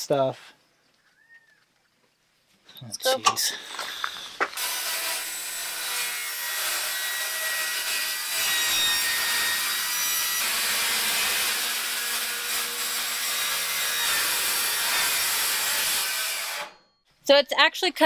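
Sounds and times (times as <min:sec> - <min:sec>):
circular saw cutting metal: 0:04.6 - 0:16.8.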